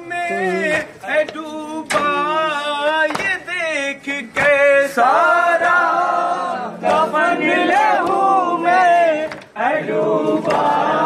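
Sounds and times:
men chanting in unison: 0.0 - 11.0
chest-beating slaps: 0.7 - 3.5, 6.8 - 10.8.

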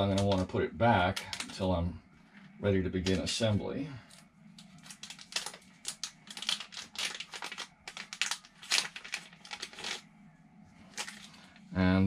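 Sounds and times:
plastic bag crinkling: 4.1 - 10.1, 10.9 - 11.6.

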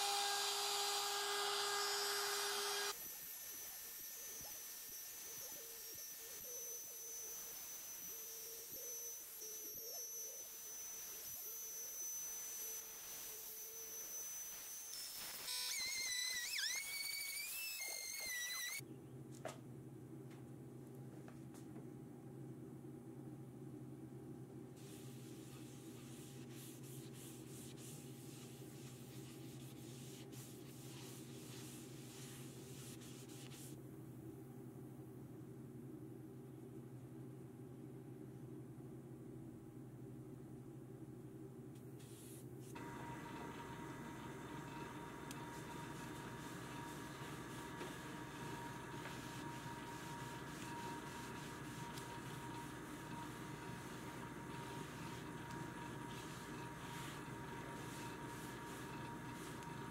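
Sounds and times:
router spindle whine: 0.0 - 18.8
rag rubbing on wood: 45.5 - 59.9.

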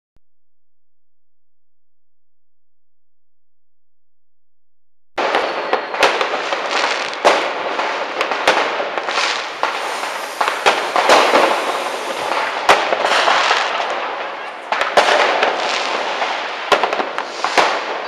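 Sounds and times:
fireworks and firecrackers crackling: 5.2 - 18.0.

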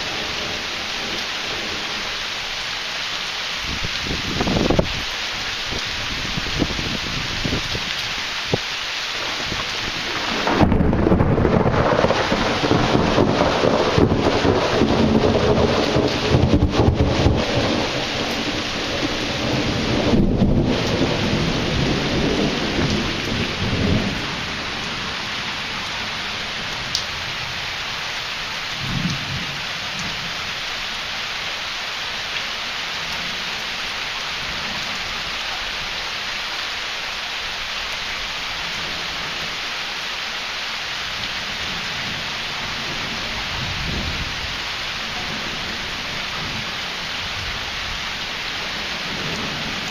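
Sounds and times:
heavy rain: 0.0 - 49.9
thunder rumbling: 3.7 - 5.1, 9.2 - 27.5, 41.2 - 49.9.

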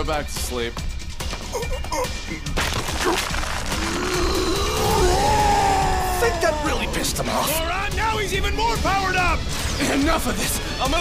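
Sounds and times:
background music: 0.0 - 11.0
man growling angrily: 3.7 - 7.5.

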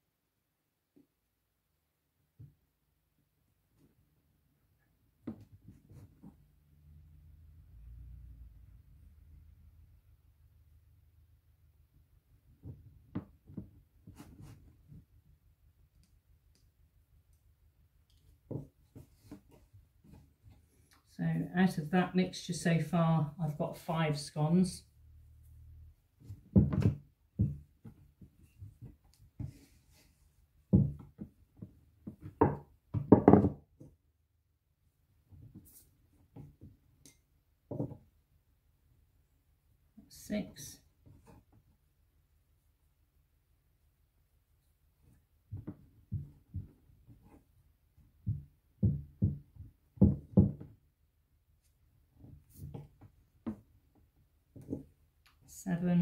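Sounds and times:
hands patting dough on wood: 26.1 - 34.0, 45.0 - 50.8
rolling pin knocking on wooden board: 26.4 - 29.6, 30.7 - 33.9, 48.2 - 50.8.

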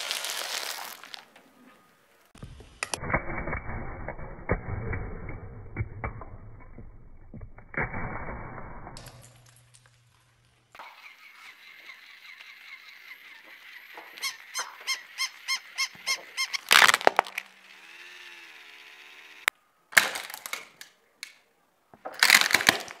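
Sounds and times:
plastic toy crunching under tyre: 0.0 - 1.4, 16.0 - 18.2, 19.9 - 21.0, 22.0 - 23.0
toy dog whirring: 10.8 - 16.7, 17.4 - 19.5.

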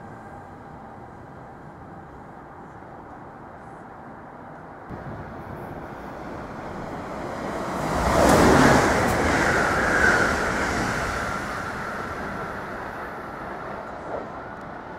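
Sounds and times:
train rushing past: 4.9 - 14.9.

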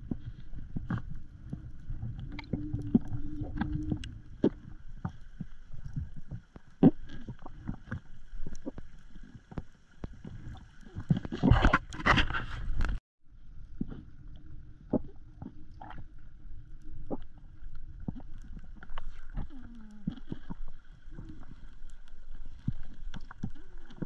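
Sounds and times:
low underwater rumble: 0.0 - 24.0
underwater clicks and knocks: 0.1 - 13.0.

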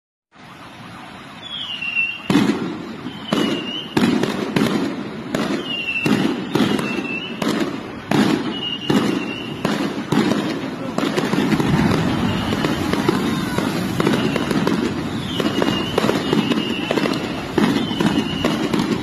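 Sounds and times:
falling firework whistle: 1.4 - 19.0
fireworks bangs: 1.4 - 19.0.

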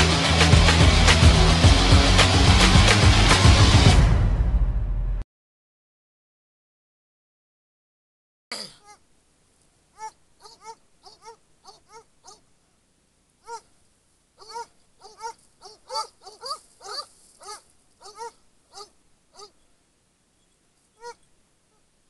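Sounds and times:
dogs baying and yelping: 10.0 - 12.5, 13.4 - 13.8, 14.4 - 19.6, 21.0 - 21.8.

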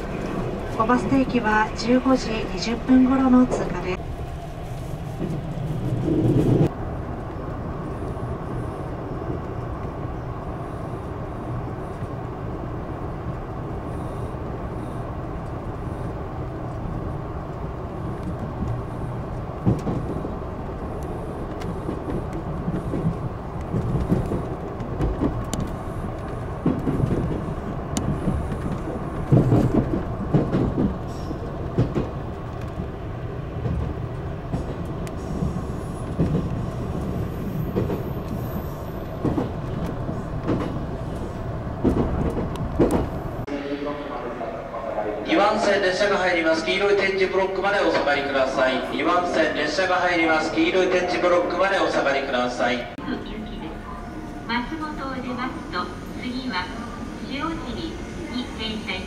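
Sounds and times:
train rumbling: 0.0 - 59.0
train bumps: 19.6 - 20.4, 21.0 - 43.5.

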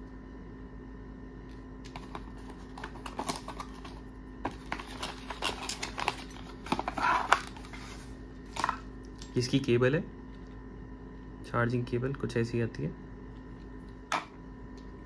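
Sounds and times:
faint steady hum: 0.0 - 15.0
cardboard rustling: 1.9 - 8.6.

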